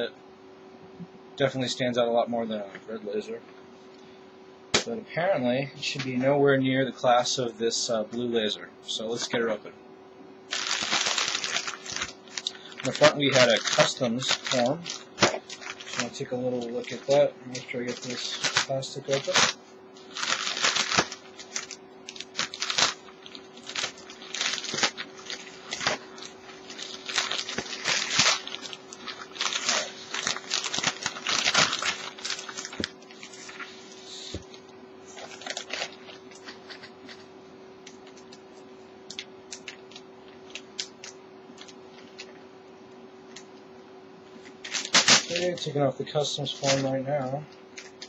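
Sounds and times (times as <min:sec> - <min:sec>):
plastic mailer bag tearing: 0:10.5 - 0:33.8, 0:35.1 - 0:37.2, 0:44.6 - 0:45.8, 0:46.4 - 0:46.9
plastic crinkling and rustling: 0:10.5 - 0:38.4, 0:39.1 - 0:42.4, 0:44.4 - 0:45.8, 0:46.4 - 0:47.0.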